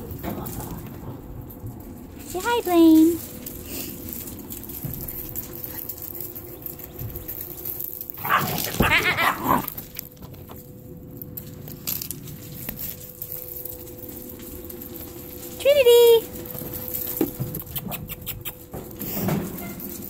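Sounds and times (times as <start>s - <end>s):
paws scuffing on gravel: 1.7s - 20.0s
puppy yelping barks: 8.2s - 9.7s.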